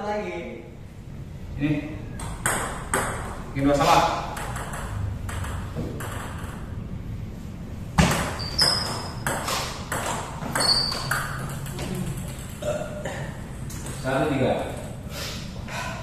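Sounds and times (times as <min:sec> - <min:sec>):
short high squeaks: 0:08.4 - 0:09.6, 0:10.5 - 0:11.4.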